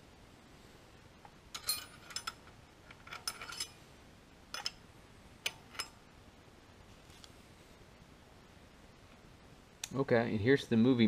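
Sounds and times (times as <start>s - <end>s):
wrench clinking against metal: 1.5s - 3.8s, 4.5s - 4.8s, 5.4s - 6.0s.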